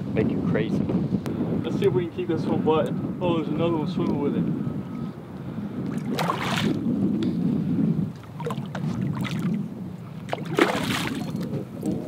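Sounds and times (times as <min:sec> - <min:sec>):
wind rumbling on microphone: 0:00.0 - 0:12.0
water moving around pilings: 0:04.8 - 0:07.0, 0:08.0 - 0:12.0.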